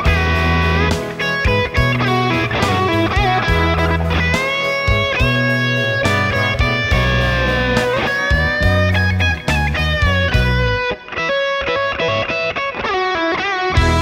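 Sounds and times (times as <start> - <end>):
bass line: 0.0 - 10.9, 13.8 - 14.0
electric guitar melody with bends: 0.0 - 14.0.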